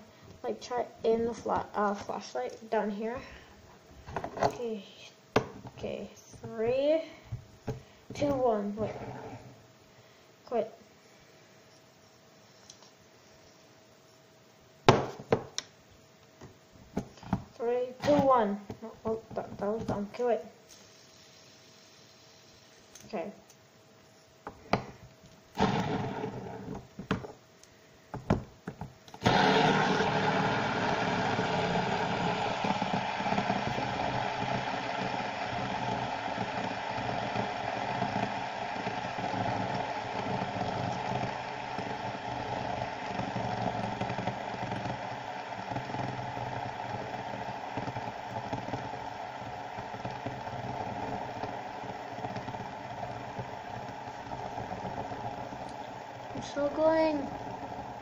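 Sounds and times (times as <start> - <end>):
fidget spinner whirring: 29.2 - 58.0.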